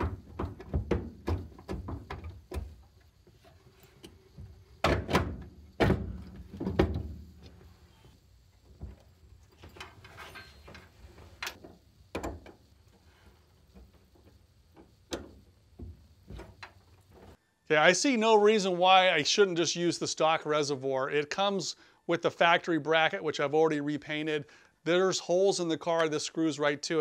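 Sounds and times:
metal parts clunking: 0:09.6 - 0:12.5.

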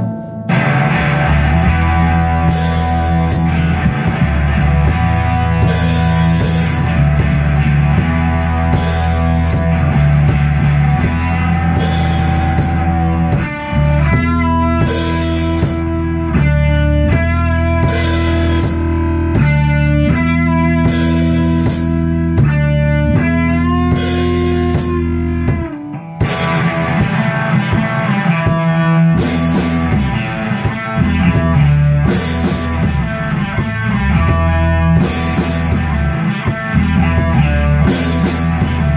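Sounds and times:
rock band playing live: 0:00.0 - 0:38.9.

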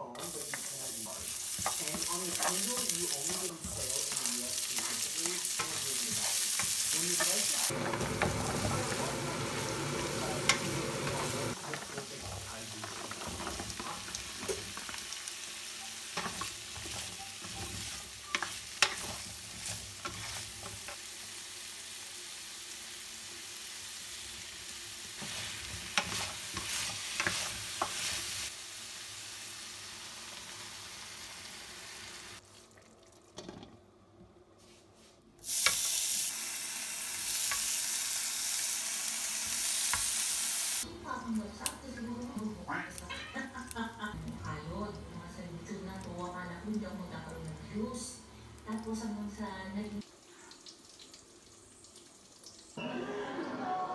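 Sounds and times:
vegetables sizzling in hot oil: 0:00.1 - 0:32.4, 0:35.4 - 0:47.8
spoon scraping wok: 0:15.9 - 0:21.0, 0:25.2 - 0:28.5.

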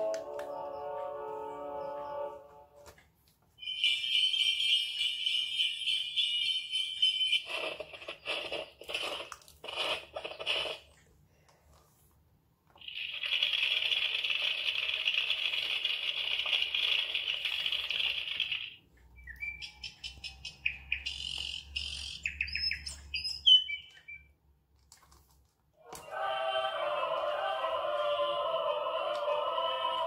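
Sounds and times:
birds tweeting and chirping: 0:19.2 - 0:24.3.

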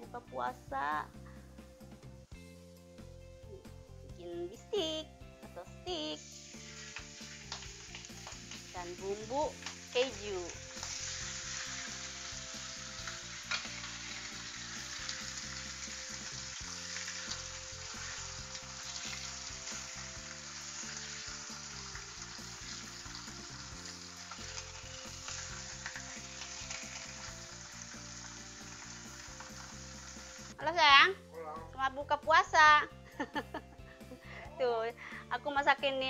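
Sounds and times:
steaks sizzling in a frying pan: 0:04.5 - 0:31.0
metal tongs clicking on pan: 0:13.0 - 0:13.9.

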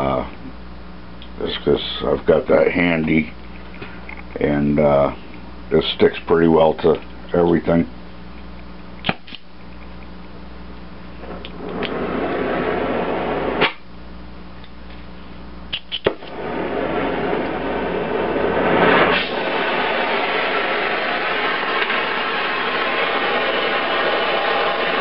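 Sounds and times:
flame cut off pop: 0:09.0 - 0:09.5, 0:11.2 - 0:12.8, 0:13.5 - 0:13.9, 0:15.7 - 0:17.6, 0:18.8 - 0:20.0
torch flame hissing: 0:11.2 - 0:13.8, 0:15.7 - 0:25.0.

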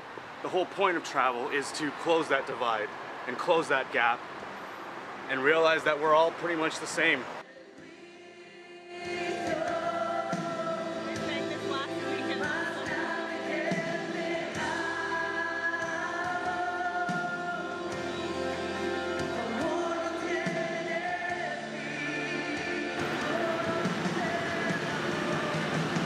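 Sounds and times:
choir singing long notes: 0:07.5 - 0:26.0.

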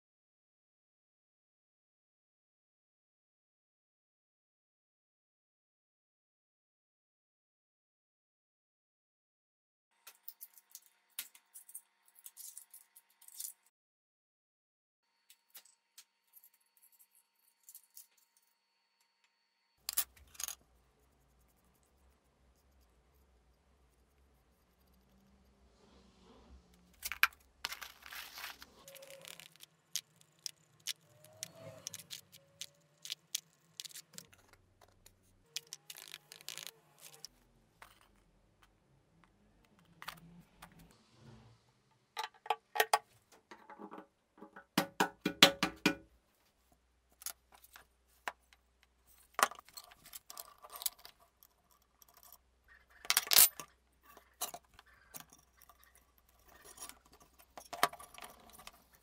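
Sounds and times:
small parts clicking and tapping: 0:10.0 - 0:13.7, 0:15.2 - 0:25.5, 0:26.8 - 0:40.8, 0:47.1 - 0:59.0.

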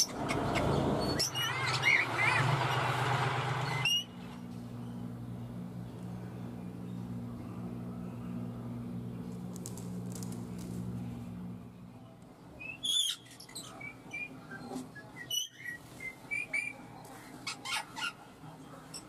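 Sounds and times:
parakeet chirping and whistling: 0:00.0 - 0:02.4, 0:03.6 - 0:04.2, 0:12.6 - 0:14.3
low hum: 0:00.1 - 0:12.4.

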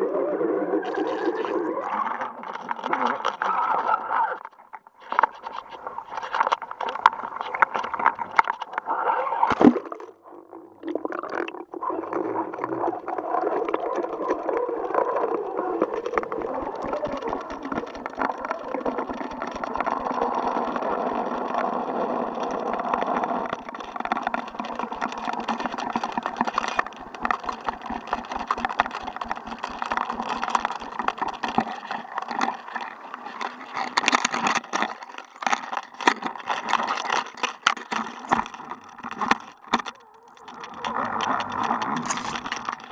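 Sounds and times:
camera splashing into water: 0:05.1 - 0:10.2.

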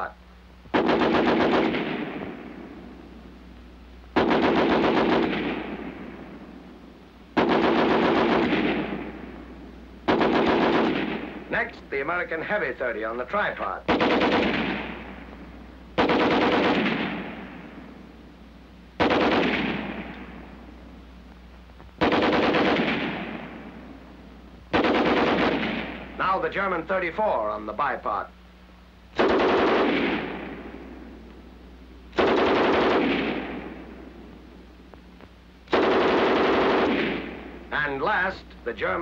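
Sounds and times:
gunfire echo: 0:00.7 - 0:03.0, 0:04.2 - 0:06.7, 0:07.4 - 0:11.7, 0:13.8 - 0:18.1, 0:19.0 - 0:20.8, 0:22.0 - 0:26.4, 0:29.2 - 0:31.3, 0:32.1 - 0:34.6, 0:35.7 - 0:37.7
machine gun bursts: 0:00.8 - 0:02.1, 0:04.2 - 0:05.6, 0:07.4 - 0:09.0, 0:10.1 - 0:11.3, 0:13.9 - 0:15.0, 0:16.0 - 0:17.3, 0:19.0 - 0:19.9, 0:22.0 - 0:23.3, 0:24.7 - 0:26.0, 0:29.2 - 0:30.4, 0:32.2 - 0:33.5, 0:35.7 - 0:37.3.

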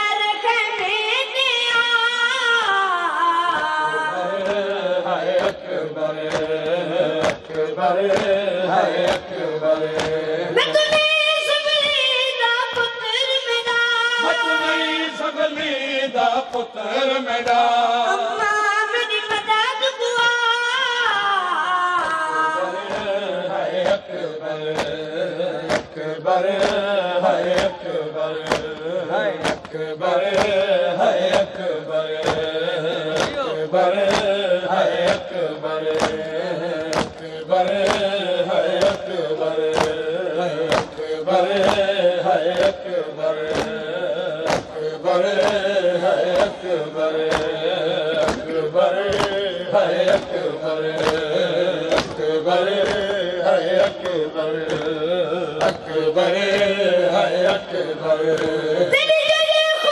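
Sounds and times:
men singing a refrain: 0:00.0 - 0:59.9
rhythmic chest-beating strokes: 0:03.5 - 0:13.4, 0:22.0 - 0:59.9
boy chanting a lament: 0:33.0 - 0:33.7, 0:58.8 - 0:59.9.

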